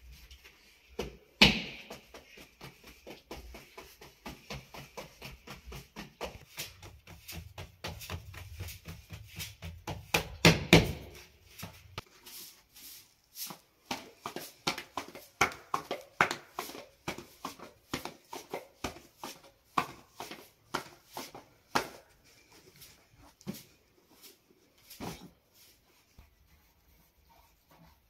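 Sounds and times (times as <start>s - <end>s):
dough slapped between palms: 1.0s - 2.7s, 9.7s - 11.2s
heavier dough thumps: 1.0s - 11.3s.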